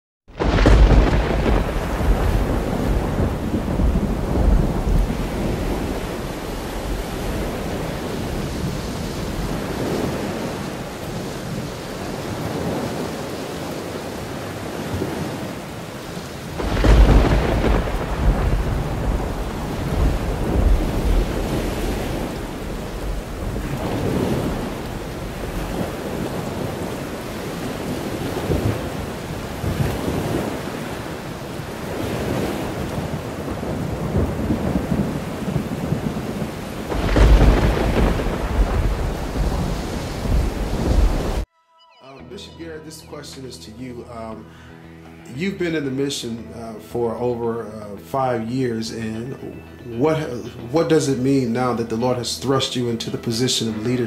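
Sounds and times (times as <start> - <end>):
loud thunderclap: 0.3 - 15.4, 16.5 - 41.5
rolling thunder: 0.3 - 15.6, 16.5 - 41.5
steady rain: 0.3 - 41.5.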